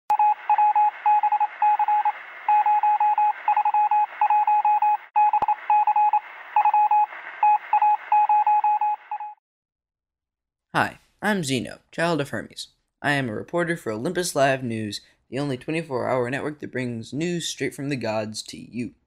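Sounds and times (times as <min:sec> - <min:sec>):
morse code beeping: 0:00.1 - 0:09.4
radio static: 0:00.2 - 0:08.4.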